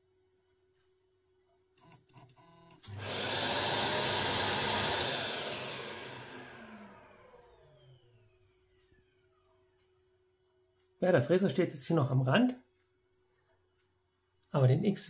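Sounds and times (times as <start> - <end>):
vacuum cleaner running: 2.8 - 9.5
clicks: 5.0 - 8.1.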